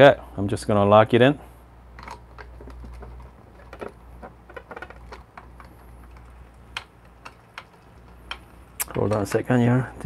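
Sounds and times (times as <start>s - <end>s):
metal clicks and scrapes: 2.0s - 9.5s.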